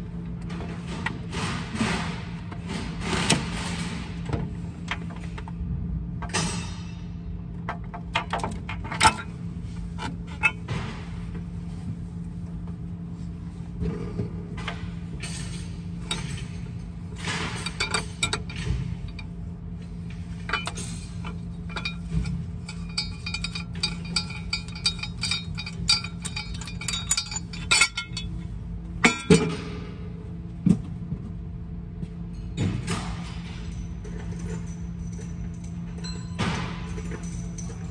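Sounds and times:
low hum: 8.5s - 37.9s
metal tools clinking: 15.2s - 19.3s, 20.2s - 29.8s, 32.6s - 37.9s.

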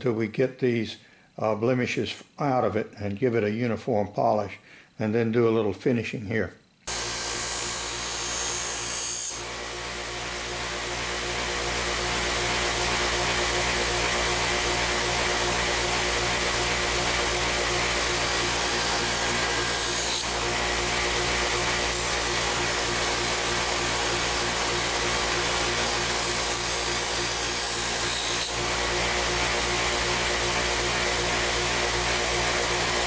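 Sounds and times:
bench grinder motor humming: 6.9s - 33.0s.

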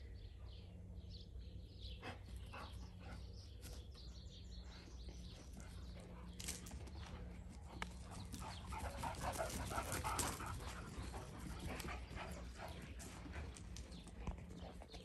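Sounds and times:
dogs vocalizing while playing: 7.9s - 14.9s.

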